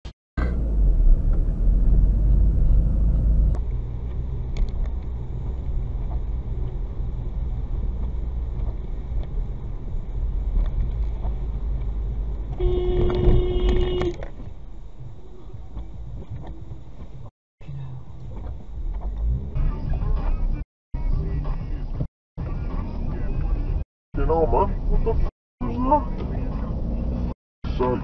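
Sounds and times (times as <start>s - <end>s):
car road and engine rumble: 0.4s - 28.0s
car horn: 12.5s - 14.2s.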